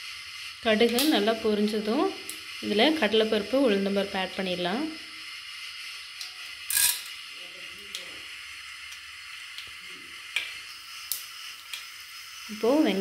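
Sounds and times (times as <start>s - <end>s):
hot oil sizzling in a pot: 0.0s - 13.0s.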